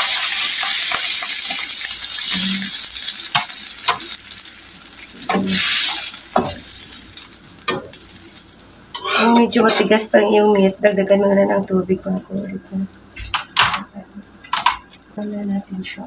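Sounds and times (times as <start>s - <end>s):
meat sizzling in a wok: 0.0s - 13.5s
knocks against a pan: 14.5s - 14.9s.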